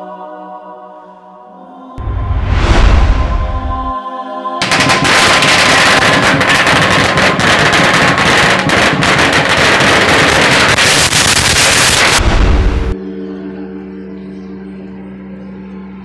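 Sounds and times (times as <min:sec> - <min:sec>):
firecrackers crackling: 0:04.6 - 0:13.0.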